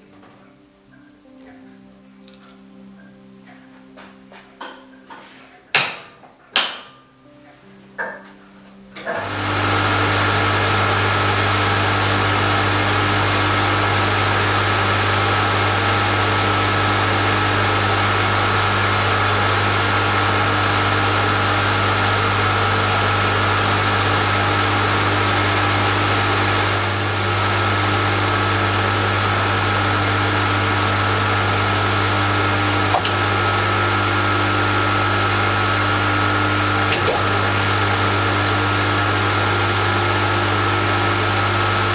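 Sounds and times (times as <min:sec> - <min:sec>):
lathe motor humming and whining: 0:09.0 - 0:41.9.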